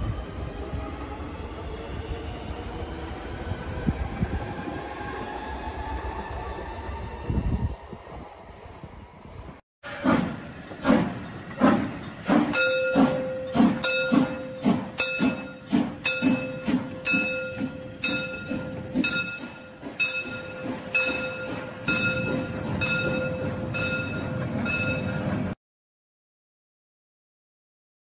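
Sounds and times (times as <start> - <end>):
steam locomotive exhaust chuffing: 9.8 - 25.6
steady high tone: 10.2 - 25.5.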